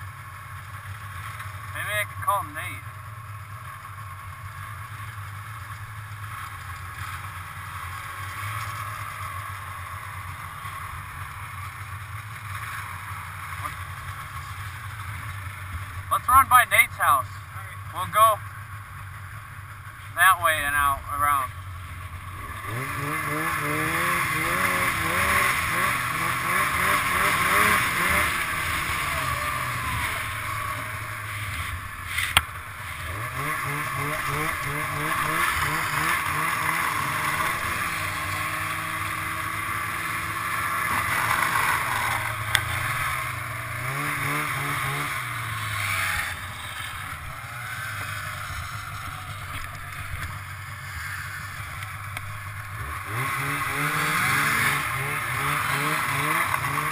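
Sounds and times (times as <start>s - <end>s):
snowmobile engine accelerating: 3.4s - 56.9s
wind and track noise: 3.4s - 56.9s.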